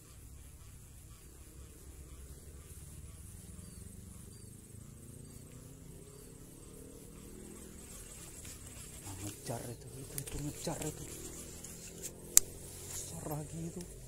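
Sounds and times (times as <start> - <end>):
insects chirping trill: 0.0 - 14.0.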